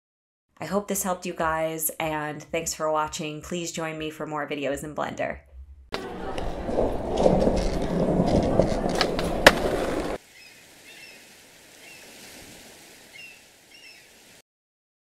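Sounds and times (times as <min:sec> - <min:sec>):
skateboard rolling on hard floor: 0:06.0 - 0:10.2.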